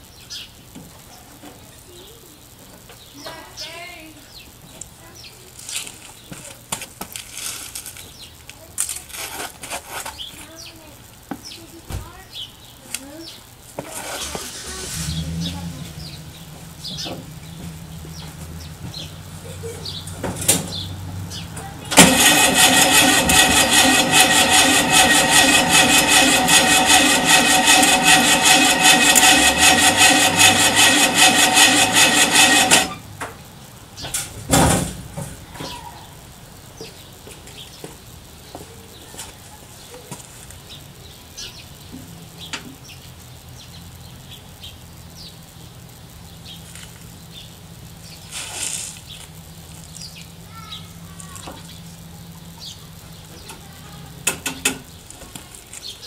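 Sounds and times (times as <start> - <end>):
engine running: 13.0 - 56.0
loud thump: 34.1 - 35.4.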